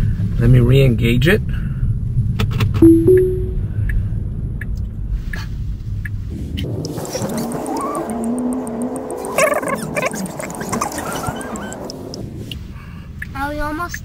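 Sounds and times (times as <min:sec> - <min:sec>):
two-step chime: 0:02.8 - 0:03.6.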